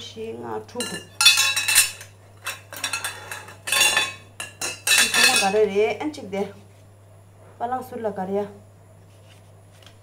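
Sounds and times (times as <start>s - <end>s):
metal tubes clattering and clinking: 0.8s - 5.6s.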